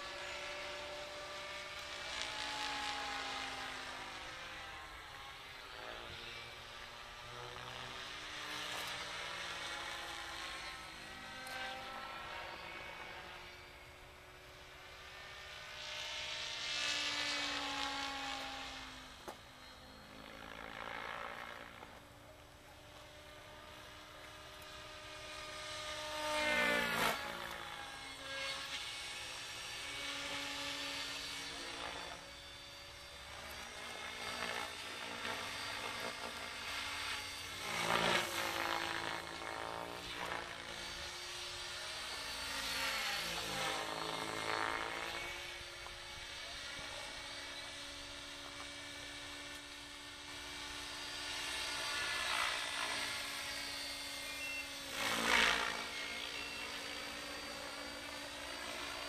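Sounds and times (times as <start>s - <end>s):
radio-controlled helicopter flying: 0.0s - 59.0s.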